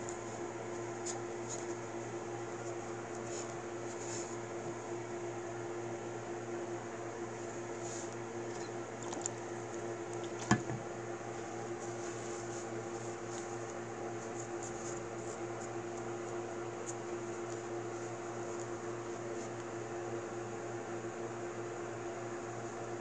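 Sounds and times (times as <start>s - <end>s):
background hum with tone: 0.0s - 23.0s.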